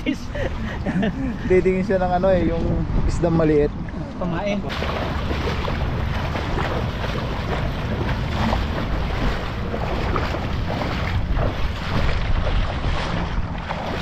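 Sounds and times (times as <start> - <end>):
wind noise on microphone: 0.4 - 14.0
legs wading through water: 4.4 - 14.0.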